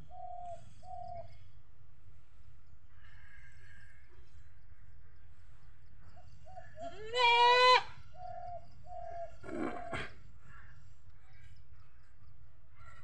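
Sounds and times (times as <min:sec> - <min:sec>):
goat bleating: 0:06.8 - 0:07.9.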